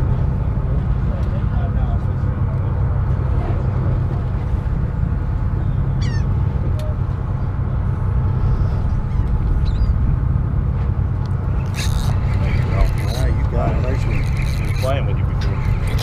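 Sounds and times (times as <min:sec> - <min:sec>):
steady low rumble: 0:00.0 - 0:16.0
gull crying: 0:06.0 - 0:06.4.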